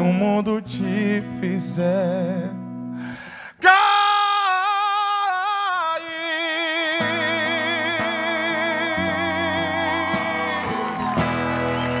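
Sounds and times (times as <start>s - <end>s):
person singing with vibrato: 0.0s - 11.0s
strummed acoustic guitar chords: 6.4s - 12.0s.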